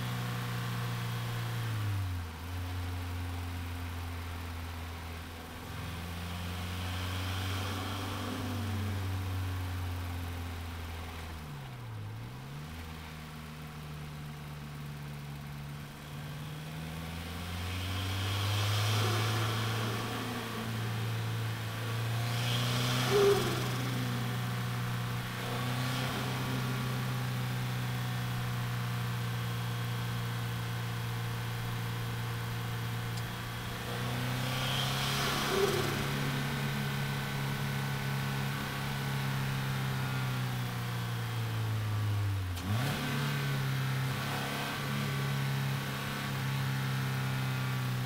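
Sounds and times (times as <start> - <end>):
car engine cruising: 0.0 - 48.0
short sharp engine burst: 22.4 - 24.4, 34.3 - 37.6.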